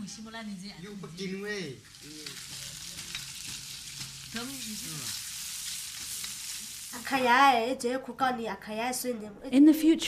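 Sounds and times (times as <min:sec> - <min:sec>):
food sizzling in a pan: 0:00.0 - 0:07.8
woman speaking: 0:09.3 - 0:10.0.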